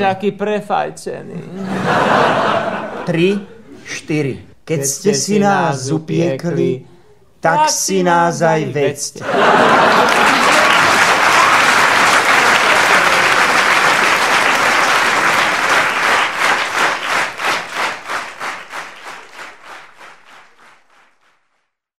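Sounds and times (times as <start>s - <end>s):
audience applauding: 9.2s - 21.6s
rhythmic clapping in unison: 9.5s - 21.8s.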